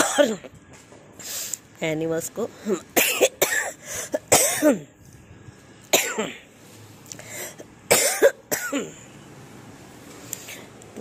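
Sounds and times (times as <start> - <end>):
woman coughing: 0.0 - 0.5, 3.0 - 4.9, 5.9 - 6.4, 7.9 - 9.0
woman speaking: 1.8 - 3.0.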